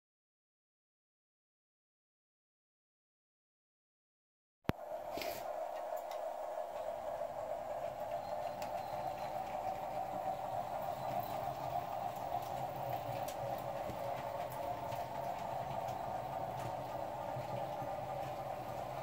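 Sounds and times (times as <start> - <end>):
model train layout humming: 4.7 - 19.0.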